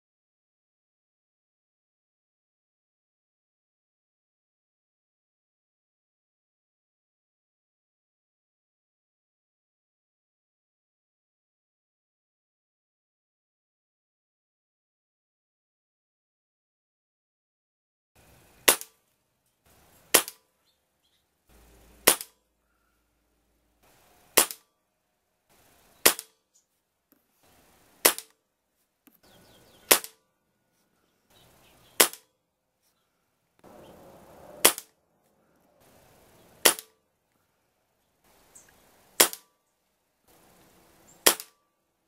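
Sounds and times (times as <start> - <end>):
air rifle shots: 18.6 - 19.0, 20.1 - 20.4, 22.0 - 22.4, 24.4 - 24.7, 26.0 - 26.3, 28.0 - 28.3, 29.9 - 30.2, 32.0 - 32.3, 33.7 - 35.0, 36.6 - 37.0, 39.2 - 39.5, 41.2 - 41.6.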